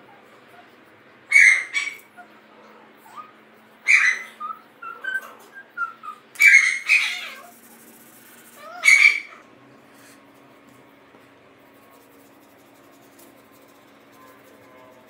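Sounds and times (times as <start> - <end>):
animal squawking calls: 1.3 - 2.4, 3.0 - 7.6, 8.5 - 9.5.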